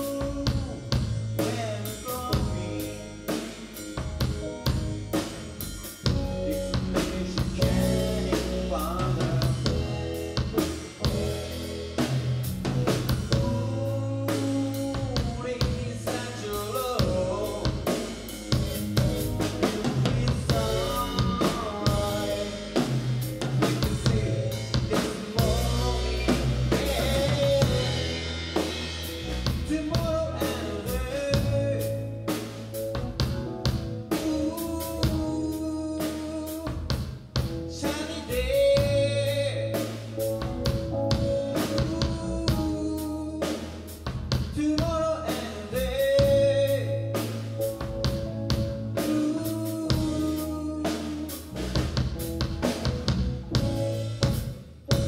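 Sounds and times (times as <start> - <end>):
drum kit beat: 0.0 - 55.0
electric bass line: 0.0 - 55.0
keyboard melody: 0.0 - 55.0.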